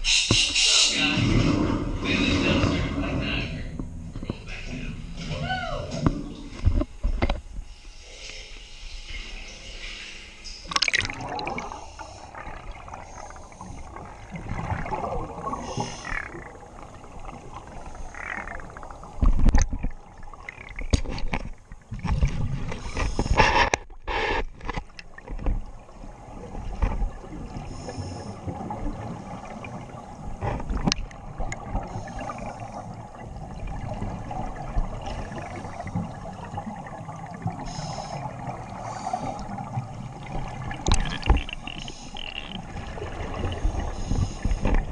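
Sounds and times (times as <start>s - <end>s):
underwater bubbles gurgling: 10.7s - 44.9s
muffled underwater murmur: 11.2s - 19.3s, 27.3s - 44.9s.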